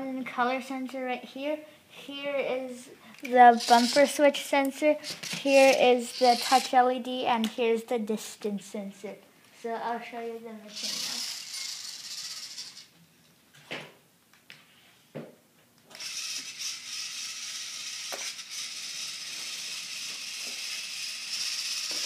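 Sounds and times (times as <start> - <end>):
robot motors and gears whirring: 10.7 - 12.9, 16.0 - 22.0.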